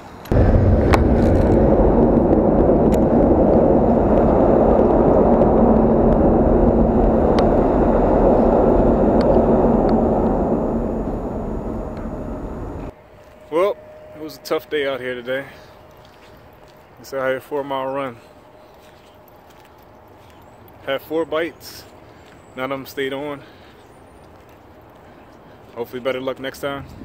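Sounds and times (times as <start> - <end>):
vehicle rumble echoing in underpass: 0.3 - 12.9.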